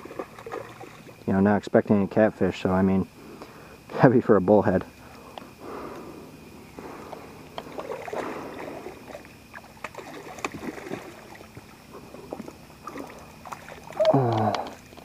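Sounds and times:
water splashing and sloshing: 0.0s - 1.3s, 5.1s - 15.0s.

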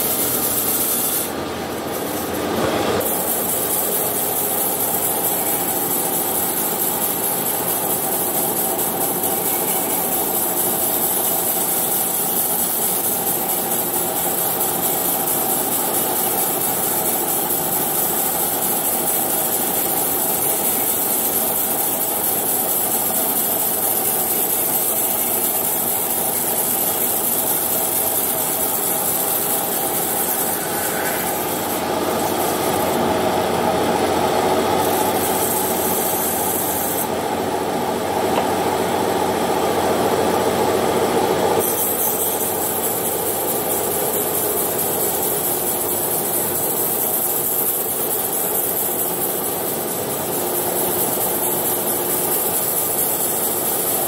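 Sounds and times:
bandsaw mill sawing a log: 0.0s - 54.0s.

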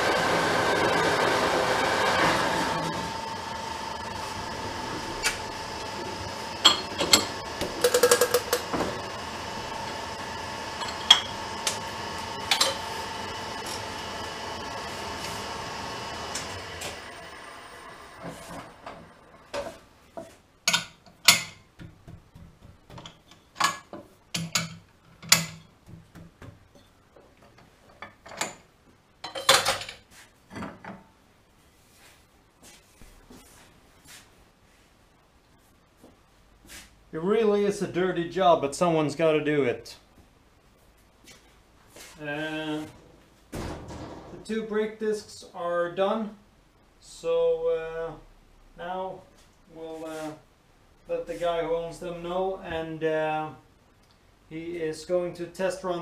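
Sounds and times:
machine hum: 0.0s - 19.8s.

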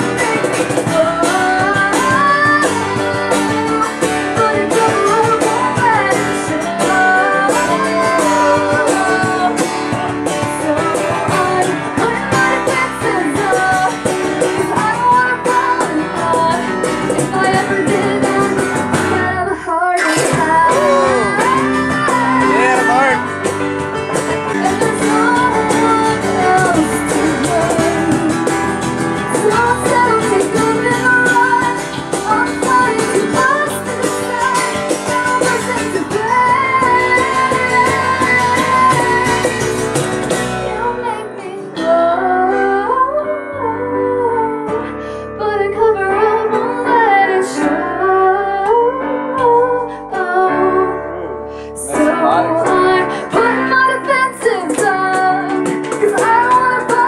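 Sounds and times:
woman singing: 0.0s - 23.5s, 24.3s - 51.1s, 51.7s - 57.0s
strummed acoustic guitar: 0.0s - 42.7s
keyboard: 0.0s - 57.0s.

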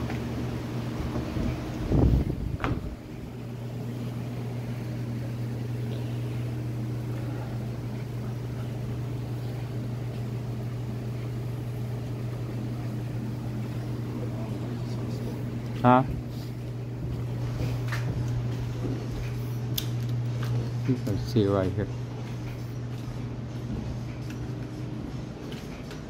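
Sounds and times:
electric fan humming: 0.0s - 26.0s
brief thump: 2.6s - 3.0s.

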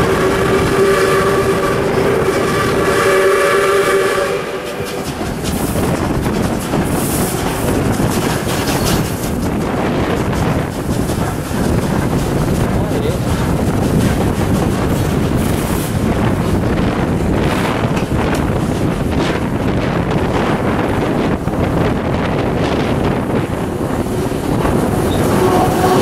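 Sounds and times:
steam locomotive whistle: 0.0s - 5.1s, 25.0s - 26.0s
moving train noise: 0.0s - 26.0s.

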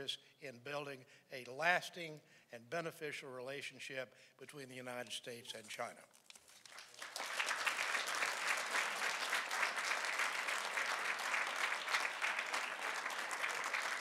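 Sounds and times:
audience applauding: 6.5s - 14.0s.

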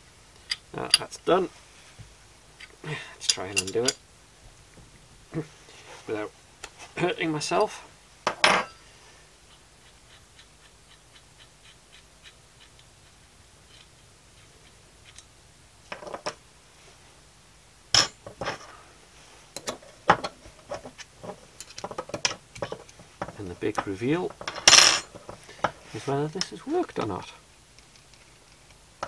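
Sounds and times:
metal tools clinking and clanking: 3.2s - 4.0s.

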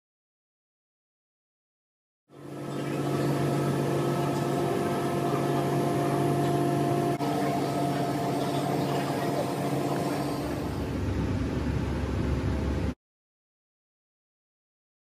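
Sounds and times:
machining center hum and whir: 2.3s - 13.0s.

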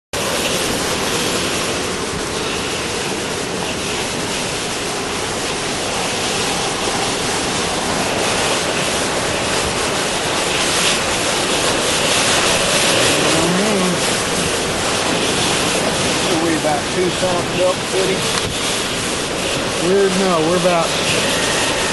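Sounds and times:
wind and heavy rain rushing: 0.2s - 21.9s
rising and falling tone: 12.9s - 14.5s.

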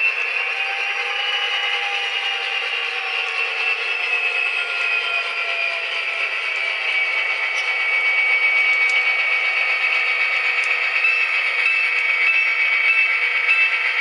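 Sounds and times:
model train diesel locomotive sound: 0.0s - 14.0s
steady whine: 0.0s - 14.0s.

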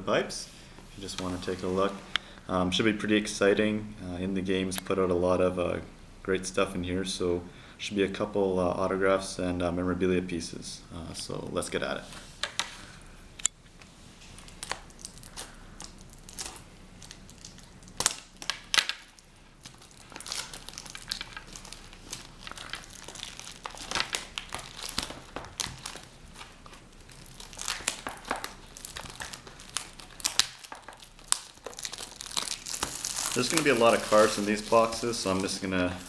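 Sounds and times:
shrink-wrap crinkling: 14.1s - 36.0s.

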